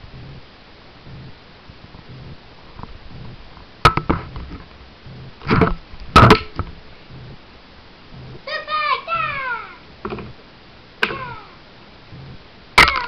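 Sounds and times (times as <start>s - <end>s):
faint hiss: 0.0s - 12.8s
rubbing scrape: 8.1s - 8.4s.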